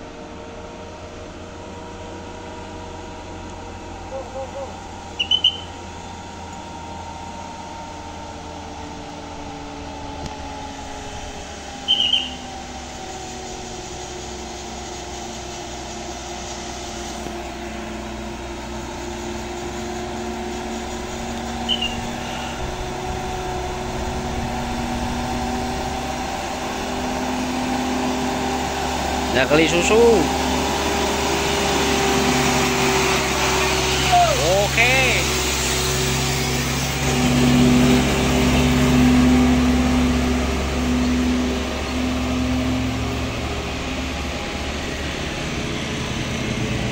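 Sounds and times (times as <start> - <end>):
diesel truck engine labouring: 0.0 - 46.9
short high chirps: 5.1 - 5.8, 11.8 - 12.5, 21.6 - 22.6.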